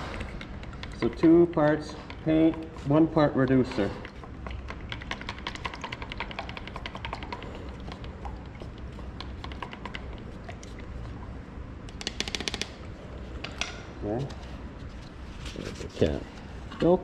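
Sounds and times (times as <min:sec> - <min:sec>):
low steady hum: 0:00.0 - 0:17.0
stir stick clicking against cup: 0:00.1 - 0:03.2, 0:03.9 - 0:10.2, 0:11.9 - 0:12.8.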